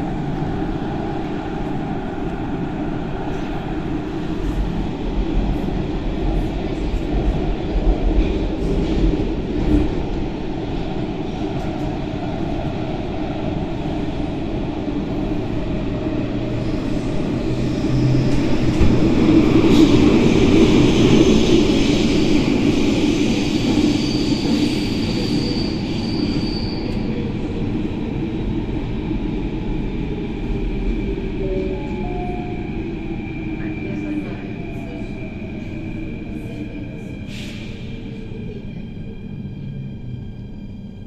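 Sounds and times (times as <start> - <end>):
high wheel squeal: 23.9 - 27.0.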